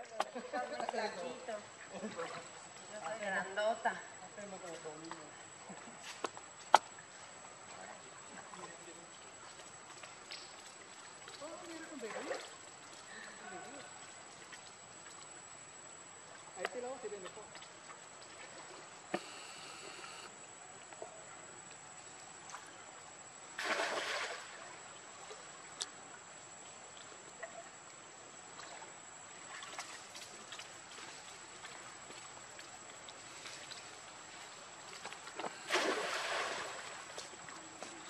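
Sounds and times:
water splashing and lapping: 0.0s - 3.6s, 4.5s - 20.3s, 22.3s - 38.0s
loud splashes: 23.6s - 24.7s, 35.6s - 37.1s.

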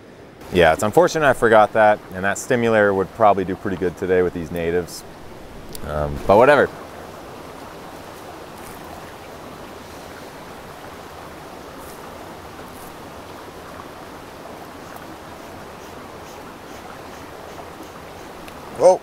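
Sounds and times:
brook water running: 0.0s - 19.0s
faint ticks: 14.9s - 18.6s.

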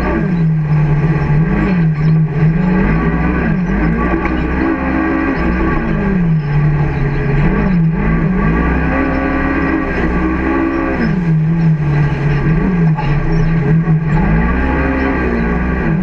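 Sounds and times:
side-by-side engine revving: 0.0s - 16.0s.

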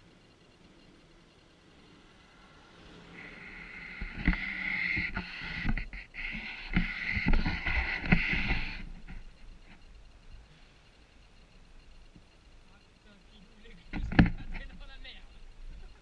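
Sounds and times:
fishing reel whirring: 0.0s - 13.8s.

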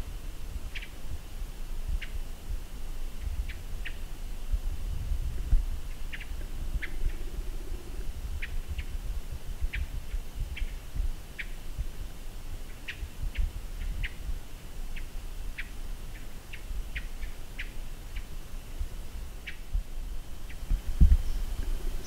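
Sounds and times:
small animal chirping: 5.9s - 8.9s.

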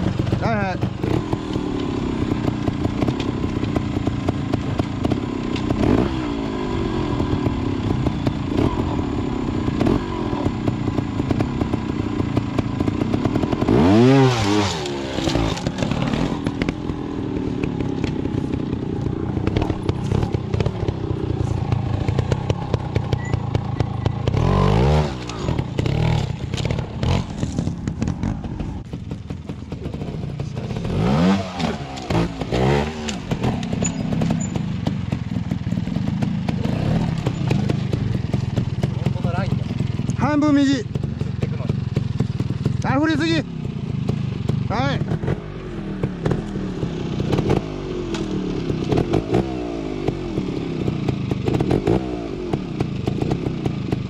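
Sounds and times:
motorcycle engine revving: 0.0s - 54.0s
knocks and clatter: 14.8s - 24.4s, 25.2s - 40.2s.

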